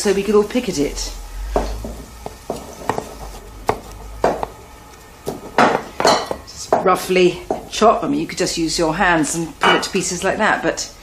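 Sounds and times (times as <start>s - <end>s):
knife chopping on wooden board: 1.6s - 4.6s.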